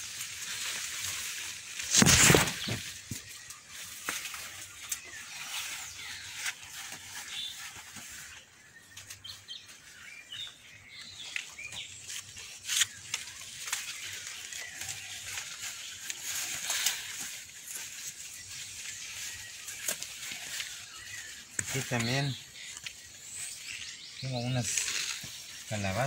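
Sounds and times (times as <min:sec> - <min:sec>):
corn leaves rustling and crackling: 0:00.0 - 0:26.0.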